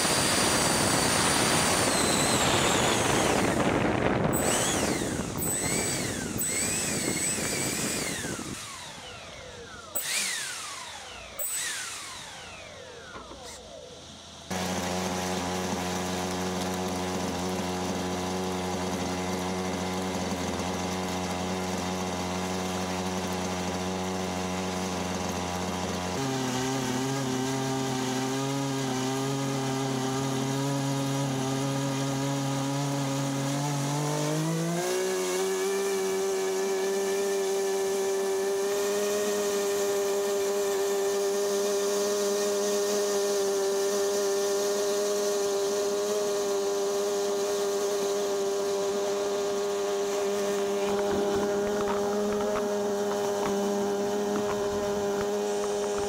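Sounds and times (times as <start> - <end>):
electric ducted fans whining: 0.0 - 24.0, 45.7 - 56.0
nitro boat engine running: 0.0 - 56.0.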